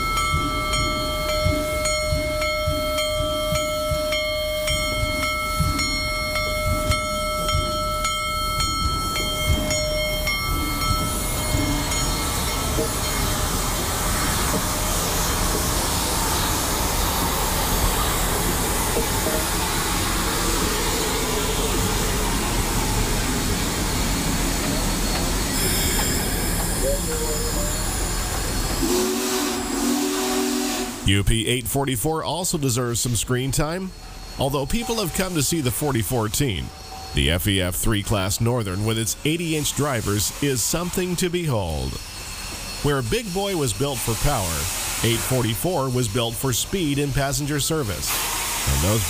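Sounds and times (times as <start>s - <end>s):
loud hiss of steam: 0.5s - 31.2s, 32.6s - 37.4s, 38.7s - 49.0s
steady multi-tone whine: 32.1s - 48.1s.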